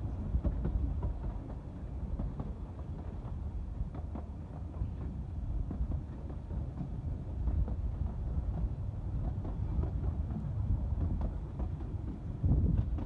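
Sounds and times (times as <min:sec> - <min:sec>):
train carriage rumbling on track: 0:00.0 - 0:13.0.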